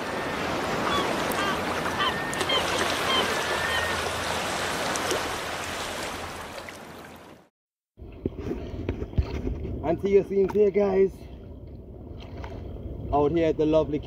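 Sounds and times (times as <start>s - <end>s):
ocean surf washing onto beach: 0.0s - 7.3s.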